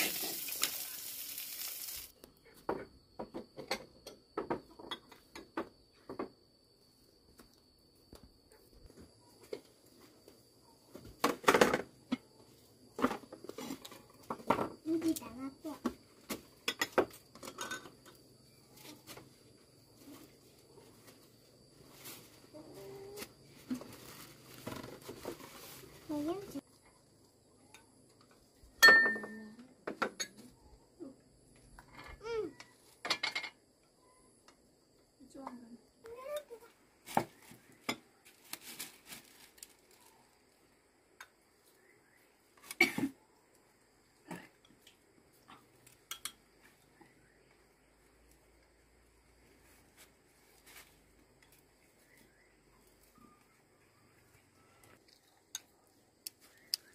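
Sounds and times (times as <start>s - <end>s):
rustle: 0.0s - 2.1s, 18.5s - 26.7s, 36.2s - 40.8s, 45.5s - 55.2s
child's voice: 14.8s - 16.0s, 26.1s - 26.6s, 32.2s - 32.6s, 35.2s - 36.8s
bowls and spoons clinking: 28.8s - 29.4s.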